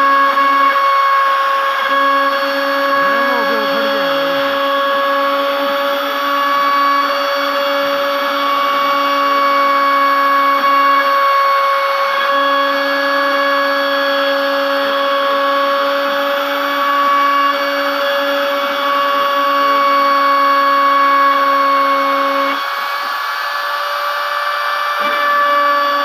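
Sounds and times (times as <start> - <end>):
router spindle whining: 0.0 - 26.0.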